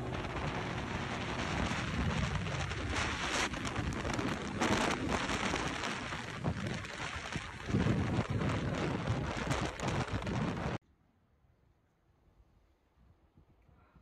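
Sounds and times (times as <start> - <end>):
road noise: 0.0 - 10.8
wind rushing over microphone: 0.0 - 10.8.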